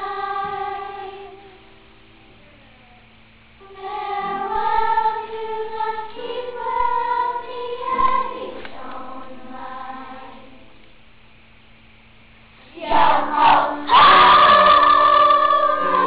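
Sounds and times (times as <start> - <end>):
children's choir singing: 0.0 - 1.7, 3.6 - 10.8, 12.6 - 16.0.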